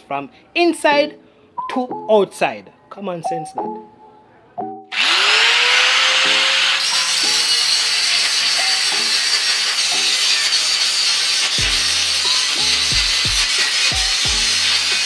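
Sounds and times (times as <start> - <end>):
background music: 0.0 - 5.0, 5.8 - 15.0
angle grinder grinding metal: 4.9 - 15.0.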